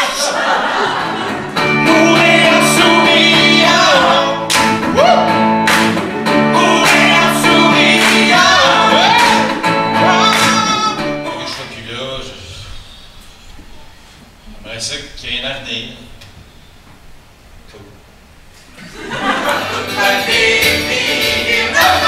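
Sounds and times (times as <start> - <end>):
group singing in harmony: 0.0 - 11.5, 19.0 - 22.0
strummed acoustic guitar: 0.8 - 11.6.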